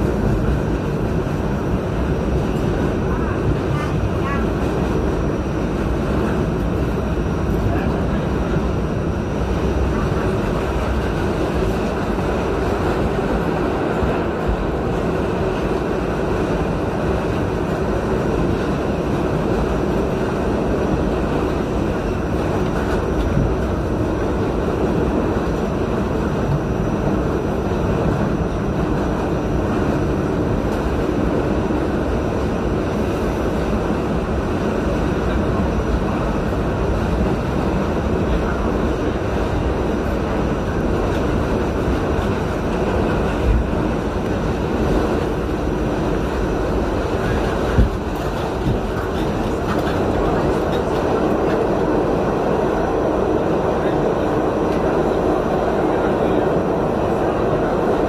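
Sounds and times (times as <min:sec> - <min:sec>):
subway train rumbling in tunnel: 0:00.0 - 0:58.0.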